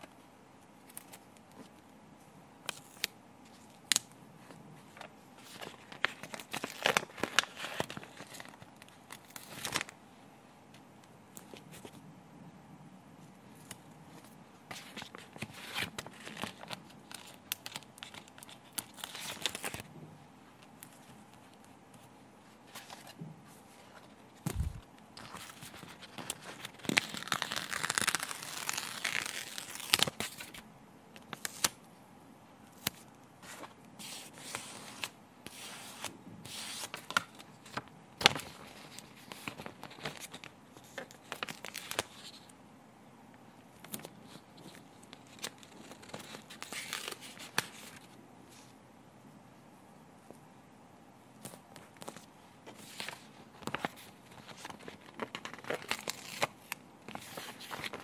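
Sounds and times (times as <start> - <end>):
sticker sheet crinkling: 24.5 - 30.6, 52.0 - 58.0.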